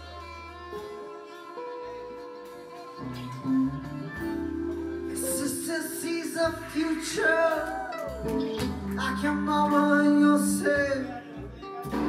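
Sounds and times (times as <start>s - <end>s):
violin melody: 0.0s - 7.5s
acoustic guitar: 0.0s - 12.0s
low bass notes: 0.0s - 12.0s.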